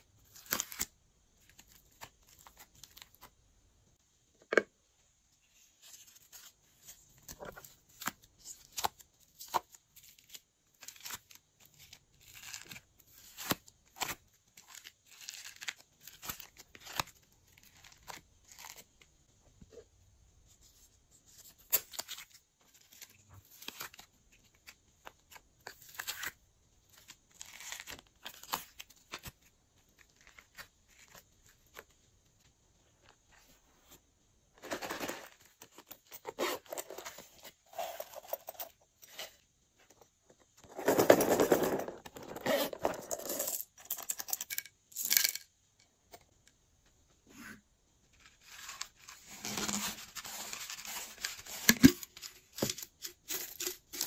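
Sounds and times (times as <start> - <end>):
clay tearing and squishing: 0.2 - 3.3, 6.0 - 19.1, 21.4 - 32.0.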